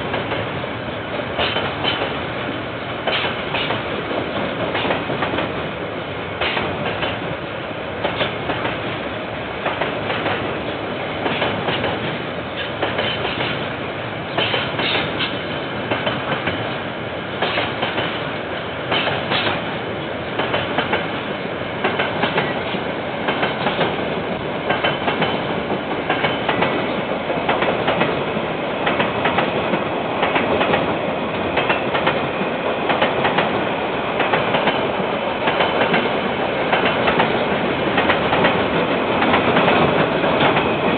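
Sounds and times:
freight train wagons rolling: 0:09.6 - 0:13.7, 0:14.3 - 0:16.7, 0:24.6 - 0:33.6, 0:34.2 - 0:40.9.

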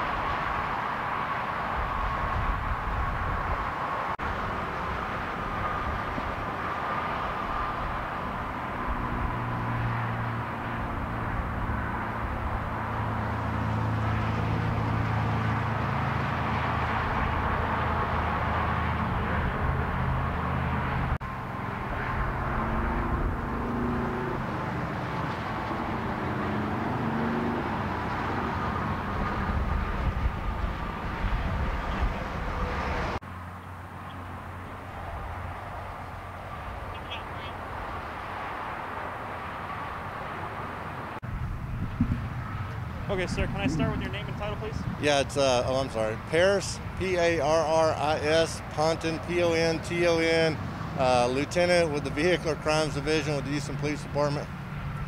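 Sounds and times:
freeway traffic: 0:00.0 - 0:55.0
low engine drone: 0:41.0 - 0:50.3.

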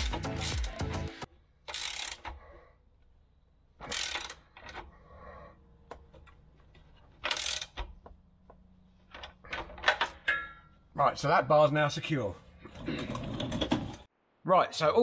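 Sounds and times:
ratchet spanner clicking: 0:00.0 - 0:00.8, 0:01.7 - 0:02.4, 0:03.9 - 0:04.8, 0:07.2 - 0:08.0.

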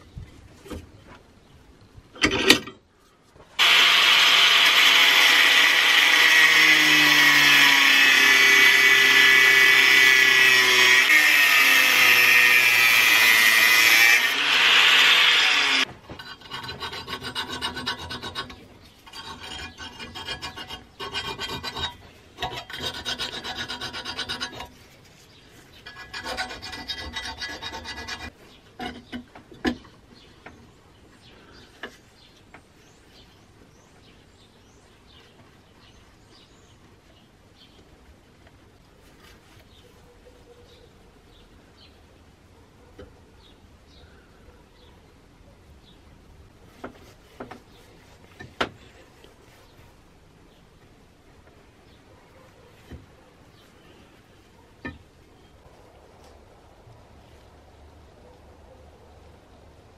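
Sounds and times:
power tool working on metal: 0:03.6 - 0:15.9
hand file scraping metal: 0:03.6 - 0:29.1.

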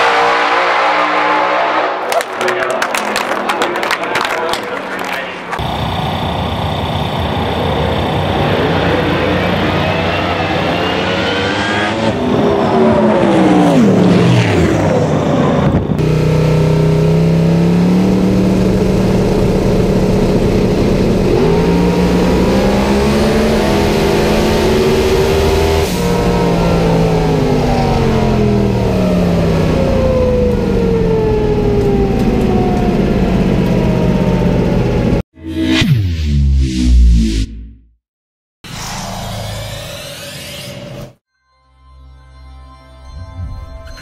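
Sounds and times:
race car engine revving: 0:05.6 - 0:35.2.

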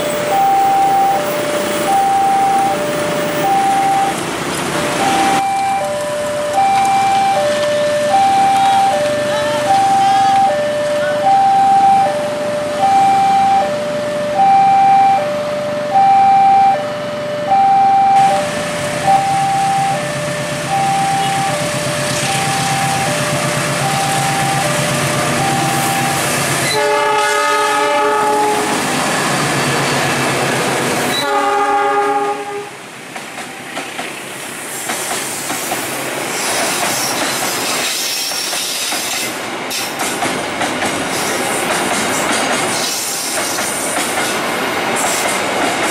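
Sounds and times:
two-tone crossing alarm: 0:00.0 - 0:04.2, 0:04.8 - 0:29.7
train wagons clickety-clack: 0:02.7 - 0:11.2, 0:19.9 - 0:32.4, 0:33.0 - 0:45.9
locomotive horn blasts: 0:25.4 - 0:28.8, 0:31.1 - 0:32.8.

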